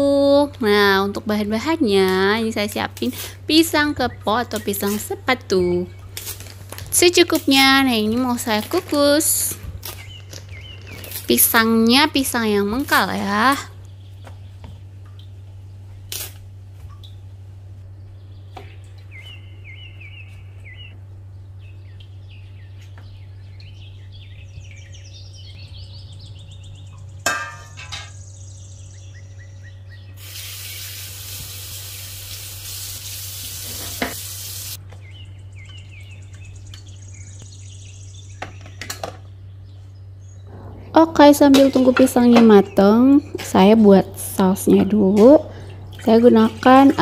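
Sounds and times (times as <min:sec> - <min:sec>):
steady low hum: 0:00.0 - 0:30.2, 0:34.8 - 0:47.0
tap running hiss: 0:30.2 - 0:34.8.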